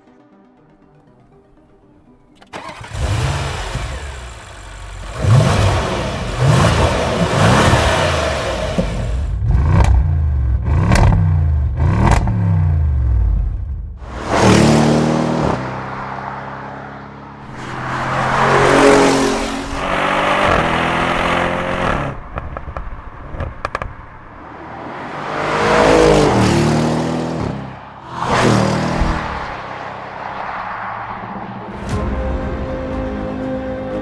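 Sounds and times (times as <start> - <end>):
car engine accelerating past: 14.1 - 22.2.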